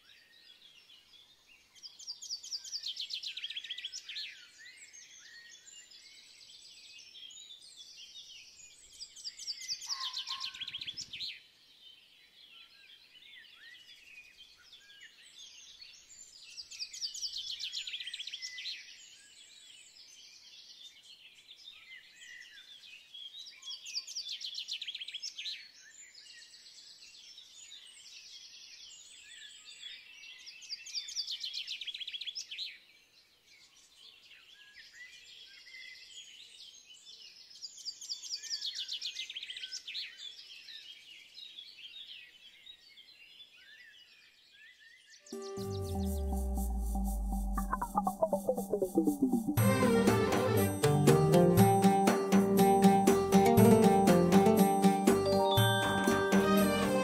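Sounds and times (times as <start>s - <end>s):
small birds chirping and trilling: 0.0s - 45.2s.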